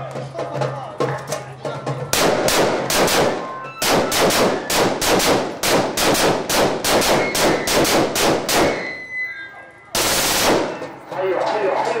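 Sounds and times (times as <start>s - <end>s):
rapid gunshots: 2.1s - 8.9s, 10.0s - 10.9s.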